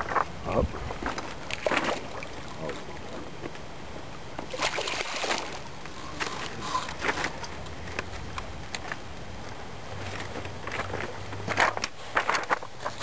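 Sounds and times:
fish thrashing water splashes: 0.7 - 3.1, 4.5 - 7.6.

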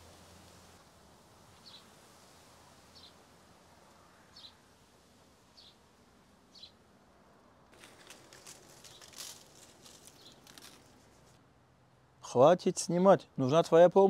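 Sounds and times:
bird chirping faintly: 1.5 - 1.9.

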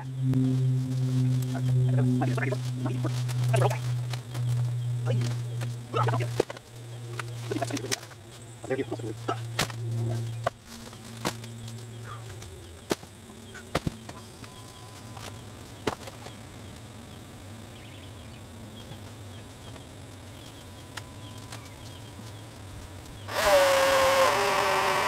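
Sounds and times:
steady low hum: 0.0 - 25.0
twigs snapping: 0.9 - 16.9.

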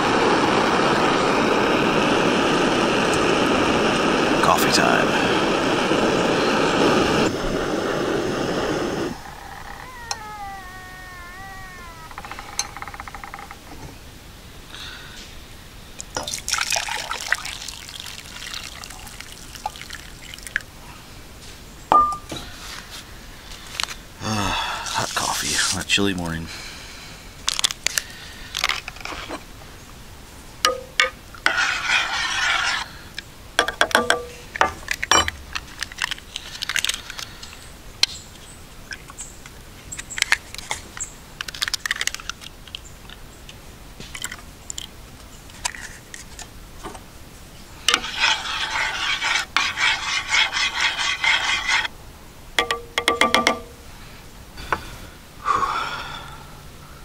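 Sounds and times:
rustling and scraping: 27.5 - 29.5, 31.0 - 33.0, 38.9 - 43.2, 44.0 - 47.1, 47.8 - 51.9
sharp clicks and knocks: 52.6 - 53.7.

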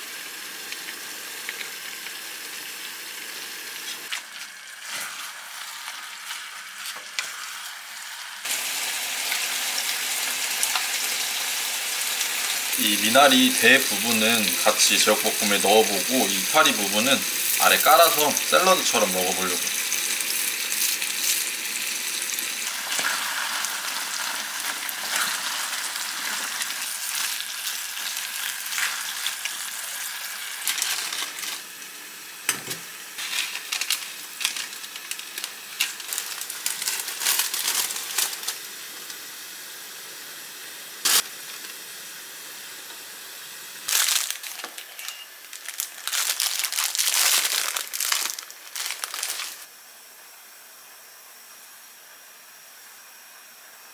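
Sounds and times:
food sizzling in a frying pan: 0.0 - 49.7
clattering and crinkling: 30.6 - 31.6, 33.2 - 38.6, 43.9 - 49.6.

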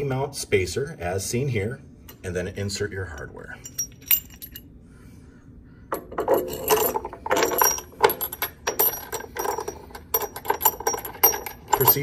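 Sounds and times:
bolt and washer clinking: 5.9 - 12.0.

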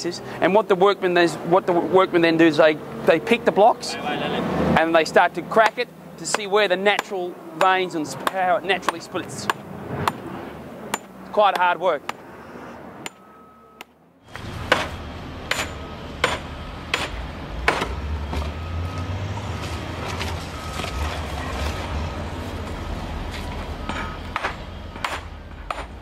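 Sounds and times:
hammer striking stone: 15.5 - 17.9.

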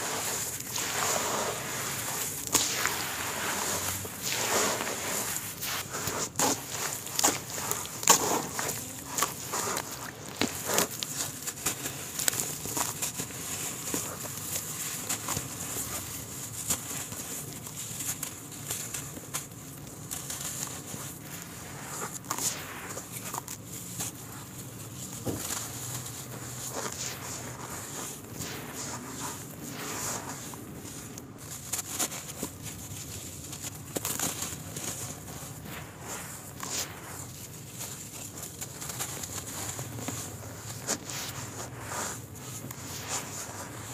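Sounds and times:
hands squishing wet mud: 0.0 - 18.4.

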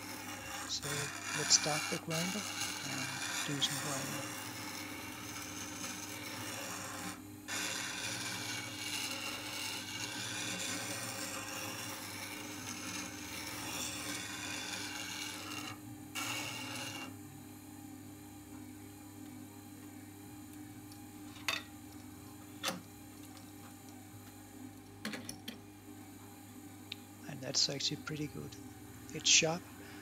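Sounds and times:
tool rasping on wet stone: 0.0 - 15.7
grinder motor hum: 0.0 - 17.6, 26.6 - 30.0.

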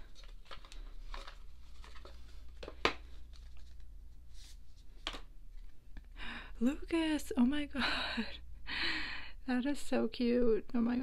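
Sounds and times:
faint rustling of wrapping: 0.0 - 6.2.

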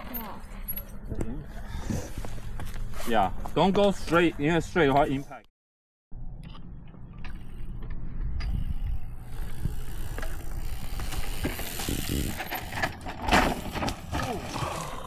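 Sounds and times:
tyre and wind rumble: 7.0 - 15.0
bike drivetrain rattling and ticking: 7.3 - 14.6.

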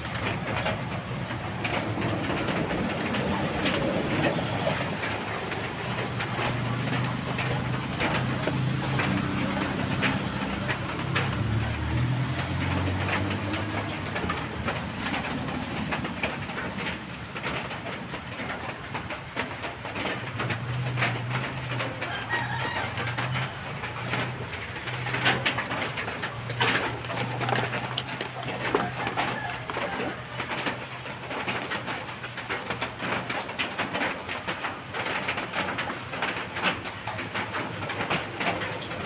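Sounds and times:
pigeon cooing: 22.0 - 30.9.

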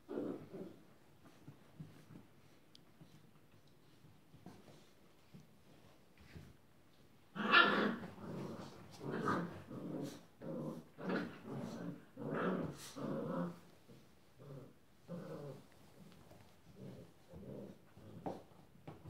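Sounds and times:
puppies growling: 0.0 - 0.9, 7.4 - 18.6.

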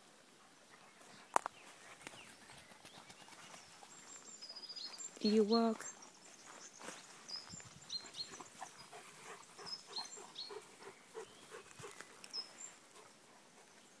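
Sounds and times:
bird chirps: 1.0 - 12.8
dog panting: 8.0 - 14.0.

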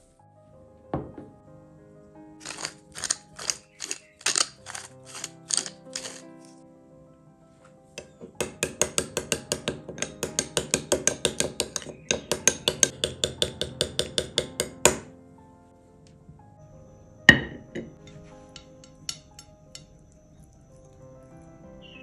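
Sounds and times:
soft background music: 0.0 - 22.0
metal spoon clinking in glass bowl: 2.4 - 6.2
glass bowl knocking on plate: 17.3 - 18.0.

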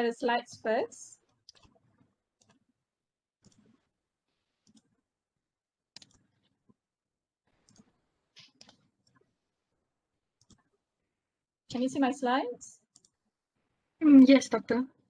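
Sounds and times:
faint computer mouse clicks: 13.0 - 13.2.

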